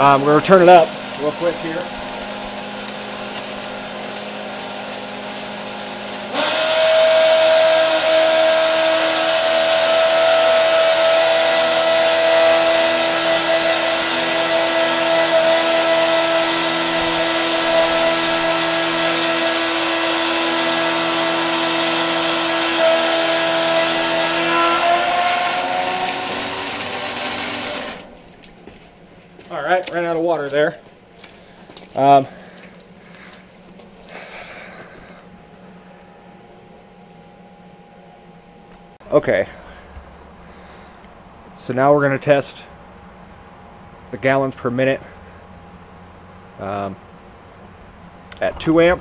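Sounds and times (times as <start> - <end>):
water spray hissing: 0.0 - 28.5
electric pump motor whine: 0.0 - 29.5.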